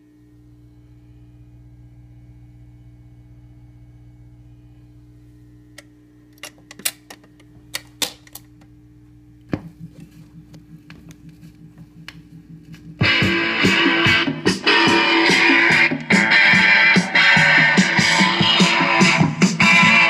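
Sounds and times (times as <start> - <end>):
steady low hum: 0.0 - 20.0
record changer clicking: 5.7 - 8.8
light ticking and rumble: 8.5 - 13.0.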